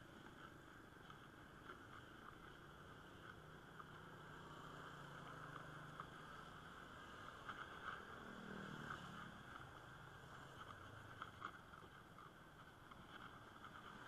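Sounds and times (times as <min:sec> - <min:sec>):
bicycle ticking over concrete: 0:00.0 - 0:14.0
motorbike engines humming: 0:02.5 - 0:11.5.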